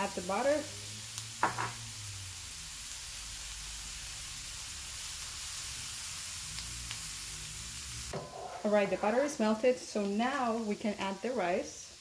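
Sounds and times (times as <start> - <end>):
butter sizzling in frying pan: 0.0 - 12.0.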